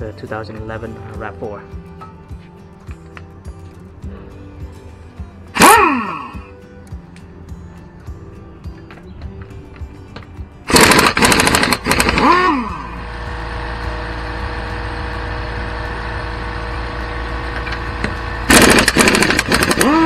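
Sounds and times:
pneumatic impact wrench hammering: 5.6 - 5.9, 10.7 - 13.5, 14.1 - 20.0
air compressor motor hum: 10.7 - 20.0.

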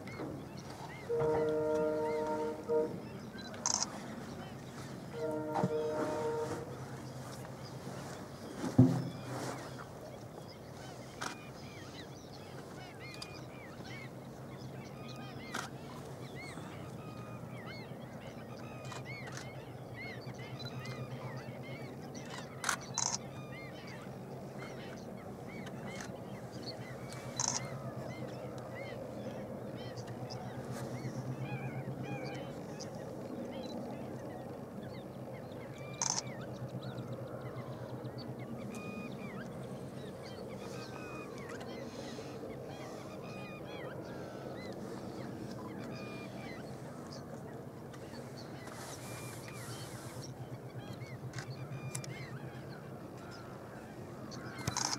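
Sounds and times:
flamingos honking: 0.9 - 6.9
sharp loud bird call: 1.0 - 3.9.

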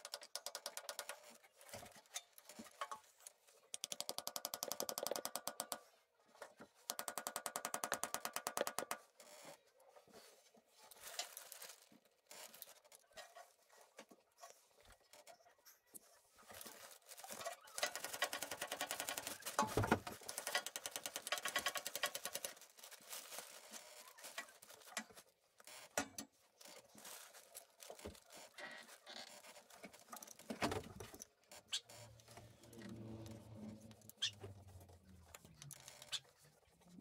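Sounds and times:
rapid even clicking of hand tool: 0.0 - 1.9, 3.7 - 5.9, 17.8 - 22.6.

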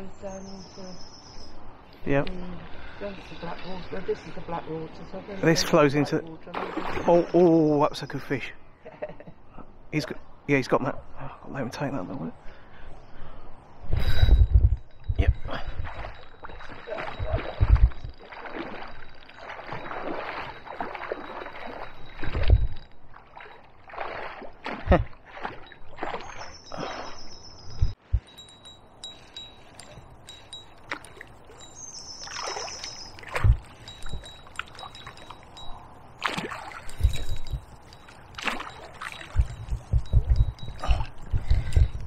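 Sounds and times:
water splashing and swirling: 2.4 - 7.7, 15.4 - 42.0.

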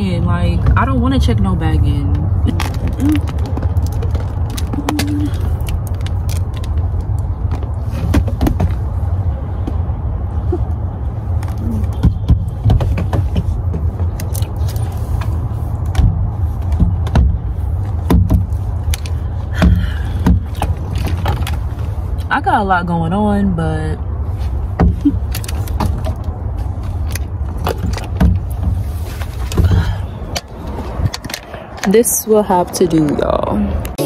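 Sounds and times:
clicks and knocks of luggage handling: 11.4 - 21.9.

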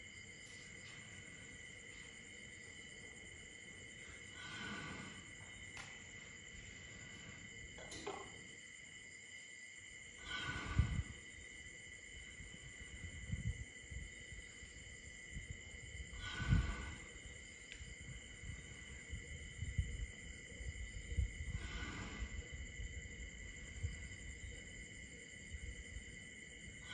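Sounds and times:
night insects chirring: 0.0 - 26.9
elephant breathing: 3.2 - 7.8, 10.1 - 11.5, 15.6 - 17.4, 18.3 - 23.8.

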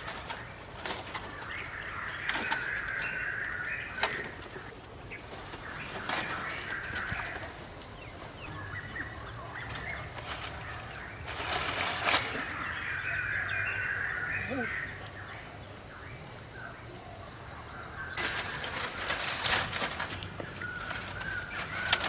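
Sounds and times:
rustling: 0.0 - 13.6, 18.2 - 22.0.

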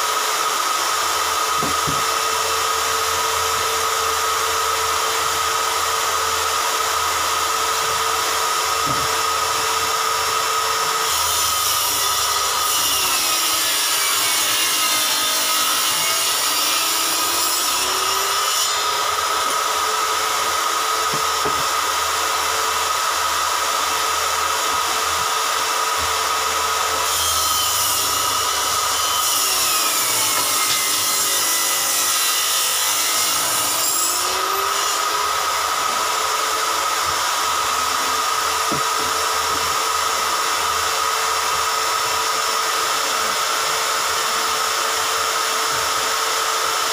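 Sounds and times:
table saw ripping board: 1.4 - 3.8, 8.3 - 25.0, 25.6 - 40.7.

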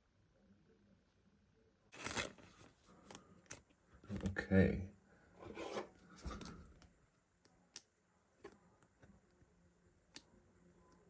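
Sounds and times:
card sleeve rustling: 2.0 - 3.6.

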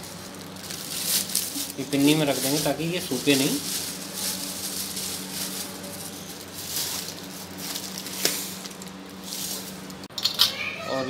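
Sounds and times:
plastic bag rustling: 0.0 - 10.1
steady low hum: 0.0 - 10.3.

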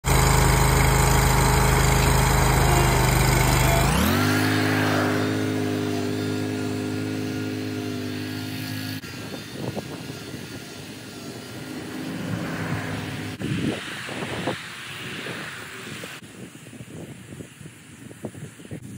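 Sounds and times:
mower engine running: 0.0 - 16.2.

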